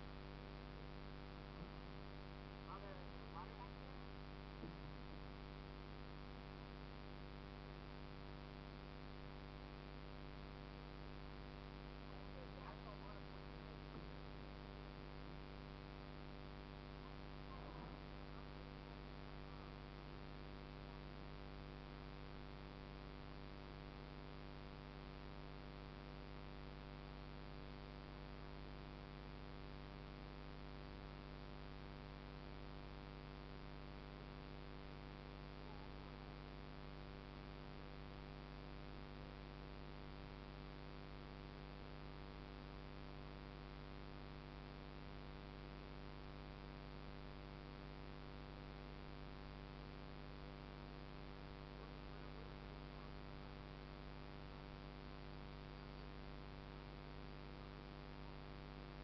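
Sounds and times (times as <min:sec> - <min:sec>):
faint electrical hum: 0:00.0 - 0:59.0.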